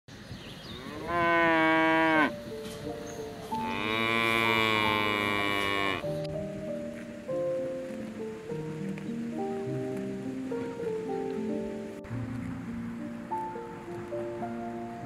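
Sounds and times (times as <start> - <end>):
soft background music: 0.7 - 15.0
cow mooing: 0.8 - 2.4, 3.6 - 6.1.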